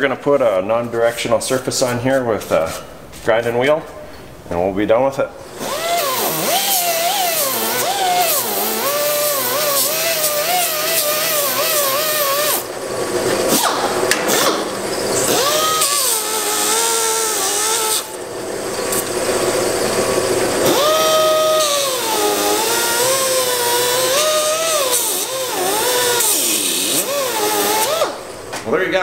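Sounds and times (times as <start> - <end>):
sanding grinder whining on metal: 5.5 - 13.8, 14.8 - 28.3.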